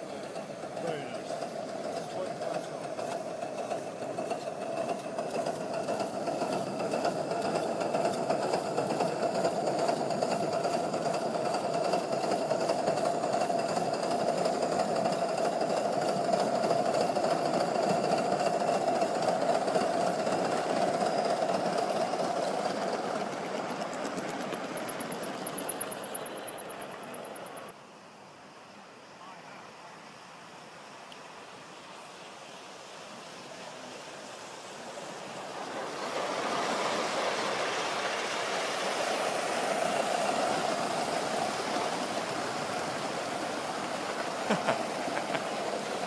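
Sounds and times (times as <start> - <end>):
model locomotive clattering: 0.0 - 27.8, 38.0 - 46.0.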